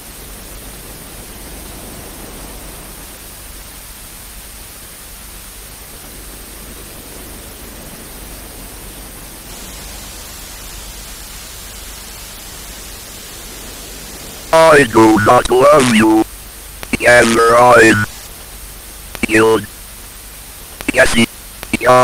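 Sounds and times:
television static hiss: 0.0s - 22.0s.

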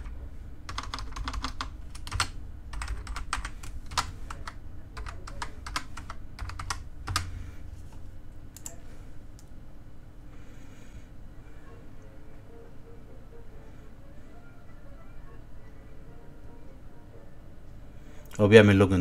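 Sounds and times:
typing on computer keyboard: 0.7s - 7.3s.

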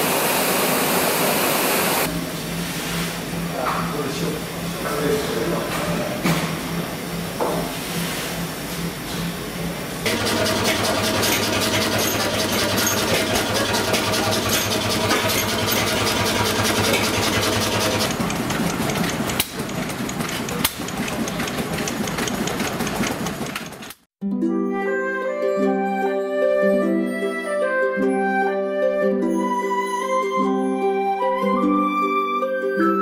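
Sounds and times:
stationary engine running: 10.1s - 24.0s.

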